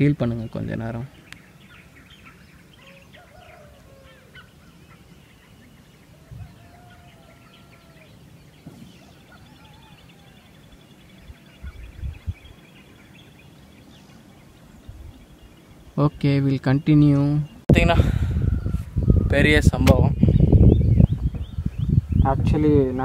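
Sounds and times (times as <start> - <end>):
birds chirping and calling: 0.0 - 23.0
longer low bird calls: 0.0 - 23.0.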